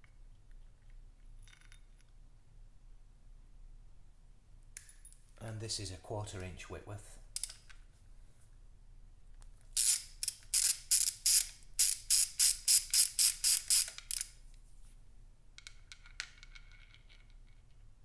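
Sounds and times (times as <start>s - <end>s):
socket ratchet clicking: 9.8s - 14.4s.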